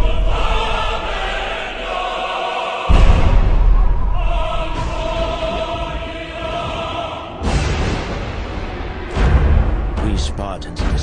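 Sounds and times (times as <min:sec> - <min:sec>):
epic trailer music: 0:00.0 - 0:11.0
heavy low boom: 0:02.9 - 0:06.8.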